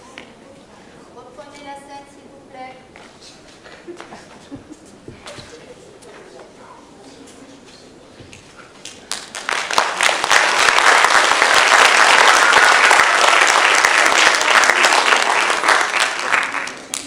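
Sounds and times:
audience applauding: 0:08.8 - 0:17.0.

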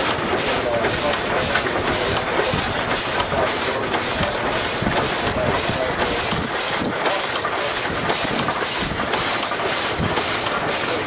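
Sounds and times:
model steam engine exhaust puffing: 0:00.0 - 0:11.0.

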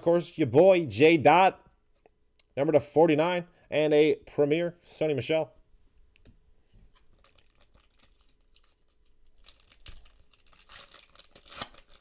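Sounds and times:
foil pack tearing and crinkling: 0:07.0 - 0:12.0.

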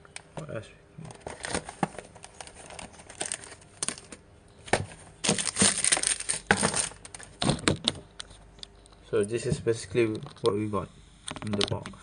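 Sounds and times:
plastic packaging crinkling: 0:01.1 - 0:04.2, 0:04.8 - 0:08.3
plastic pieces clattering on table: 0:05.2 - 0:07.8.

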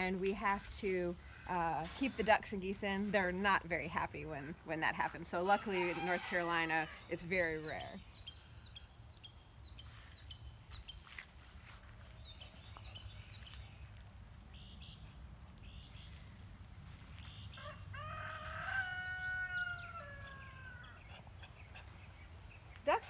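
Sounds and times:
songbird chirping: 0:00.0 - 0:23.0
rooster crowing: 0:05.6 - 0:07.0, 0:17.5 - 0:21.1.

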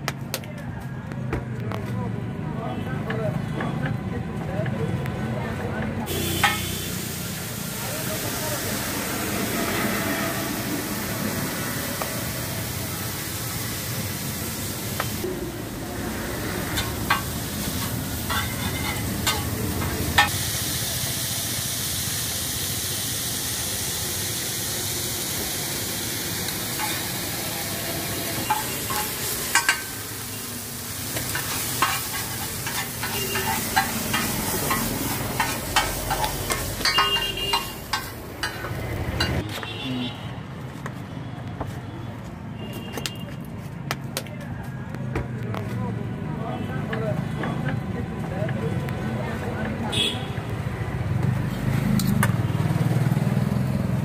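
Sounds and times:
noodles sizzling on a griddle: 0:06.1 - 0:15.3, 0:16.0 - 0:38.8
metal spatula scraping iron: 0:16.7 - 0:19.5, 0:31.3 - 0:39.4.

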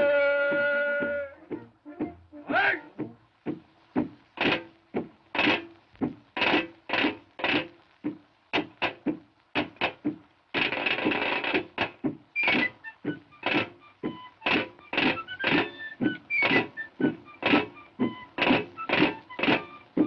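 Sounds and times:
marching drum: 0:00.0 - 0:20.0
cartoon score with accented hits: 0:12.4 - 0:20.0.

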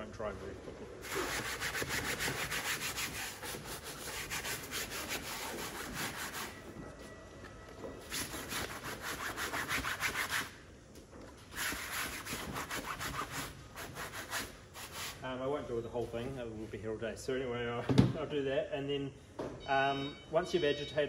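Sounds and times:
scrubbing brush on wet fabric: 0:01.0 - 0:06.7, 0:11.5 - 0:15.2.

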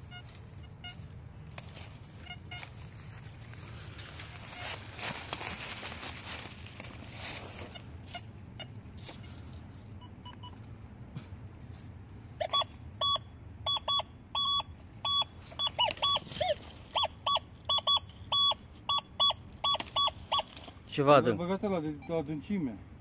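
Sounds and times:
metal detector beeps: 0:00.0 - 0:01.1, 0:02.2 - 0:02.8, 0:04.2 - 0:04.8, 0:12.4 - 0:20.6, 0:21.9 - 0:22.4.

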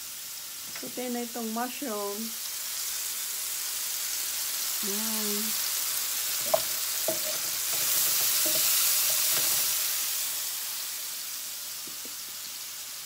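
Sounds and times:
mushrooms sizzling in a frying pan: 0:00.0 - 0:13.0
wooden spatula scraping a pan: 0:06.4 - 0:09.7.

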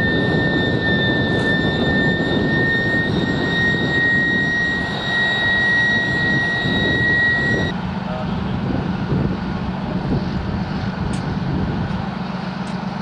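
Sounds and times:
heavy vehicle engine whining: 0:00.0 - 0:13.0.

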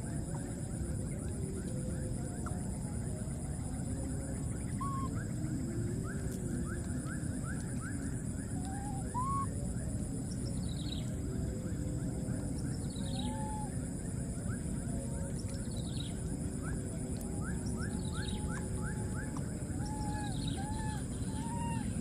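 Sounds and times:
steady high hum: 0:00.0 - 0:22.0.

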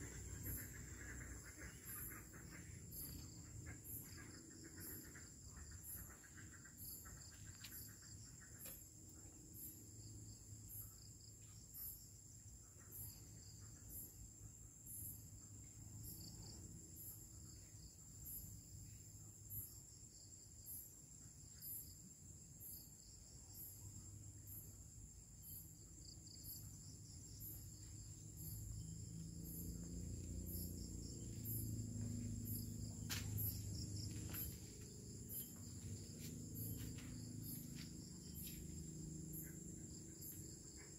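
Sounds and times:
pulsing insect chirp: 0:00.0 - 0:40.9
crickets trilling: 0:12.9 - 0:40.9.

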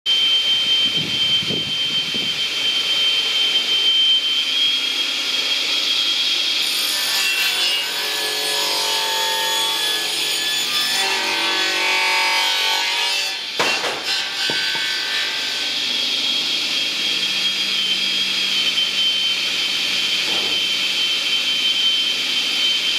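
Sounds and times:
circular saw whining: 0:00.1 - 0:22.9
saw cutting through log: 0:00.4 - 0:22.9
sharp knock: 0:13.6 - 0:14.9.

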